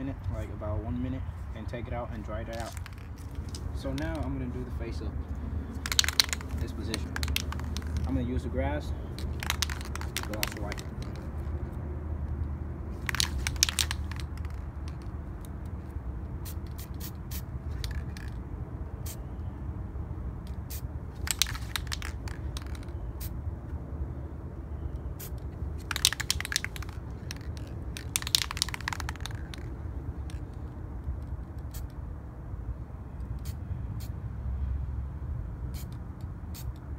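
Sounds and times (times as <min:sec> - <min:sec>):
spray paint can hissing: 0:02.5 - 0:04.2, 0:05.7 - 0:08.2, 0:09.0 - 0:11.4, 0:13.0 - 0:15.1, 0:16.4 - 0:18.4, 0:20.6 - 0:23.4, 0:25.2 - 0:30.6, 0:31.6 - 0:31.9, 0:35.7 - 0:36.8.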